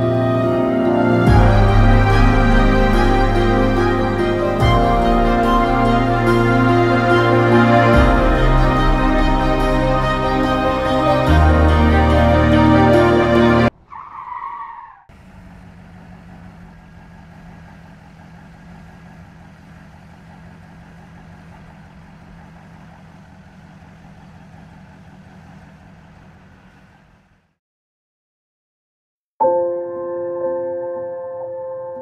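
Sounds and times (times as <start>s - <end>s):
music: 0.0s - 13.7s, 29.4s - 32.0s
car tyres screeching: 0.0s - 27.5s.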